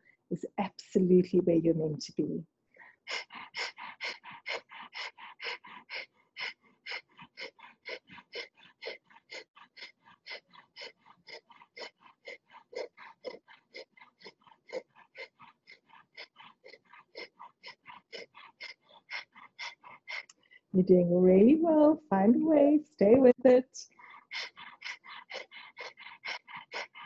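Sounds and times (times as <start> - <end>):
woman breathing rapidly through nose: 2.8 - 20.7, 23.9 - 27.0.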